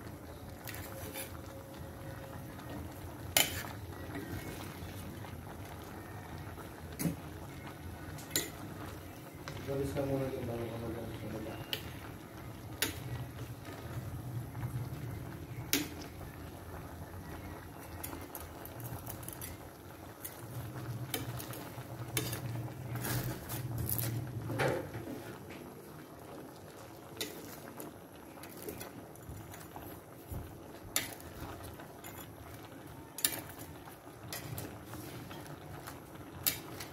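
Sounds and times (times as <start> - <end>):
stew simmering and bubbling: 0.0 - 36.9.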